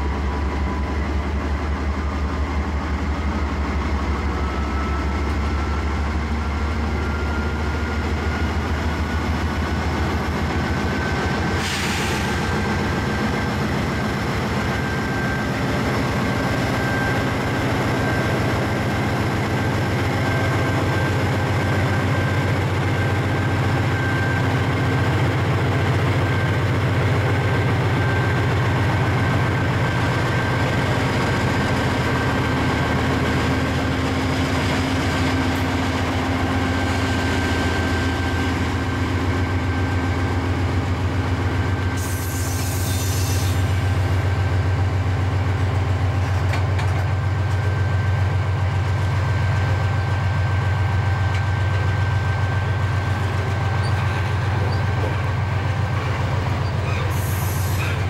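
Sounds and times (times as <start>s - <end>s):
diesel locomotive engine rumble: 0.0s - 58.0s
brief hiss: 11.6s - 12.4s.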